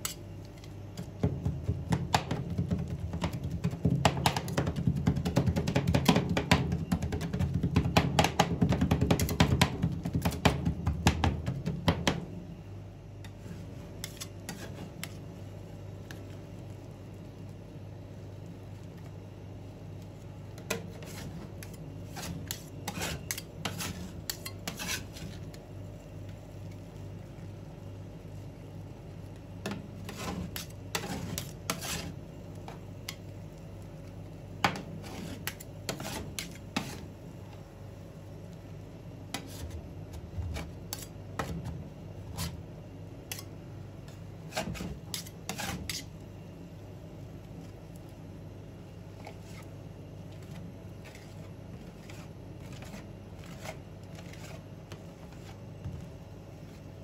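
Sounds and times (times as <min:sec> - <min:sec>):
metal spatulas chopping and scraping: 0:00.0 - 0:00.2, 0:14.0 - 0:15.2, 0:20.7 - 0:25.4, 0:29.6 - 0:32.2, 0:34.6 - 0:37.0, 0:40.5 - 0:41.6, 0:43.3 - 0:43.5, 0:44.5 - 0:46.1
steady low hum: 0:00.0 - 0:57.0.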